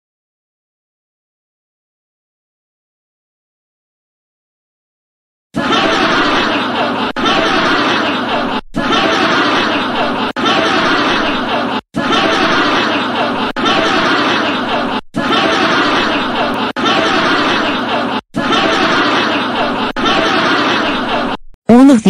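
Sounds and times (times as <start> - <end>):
crowd laughing: 5.6 - 21.5.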